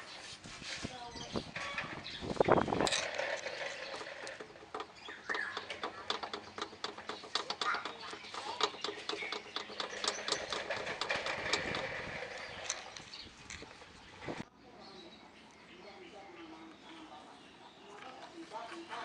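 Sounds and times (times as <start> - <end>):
metal link rattling clicks: 2.8 - 13.8.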